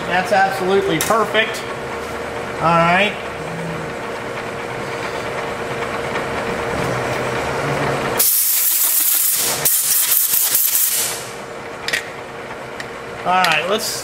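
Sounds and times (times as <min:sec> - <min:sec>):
steady machine hum: 0:00.0 - 0:14.0
air blow gun hissing blasts: 0:08.2 - 0:11.4.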